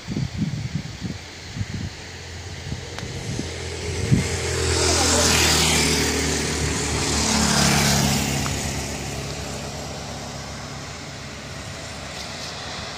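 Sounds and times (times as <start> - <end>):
steady hiss: 0.0 - 4.7, 8.3 - 12.9
vehicle engine running: 1.8 - 12.9.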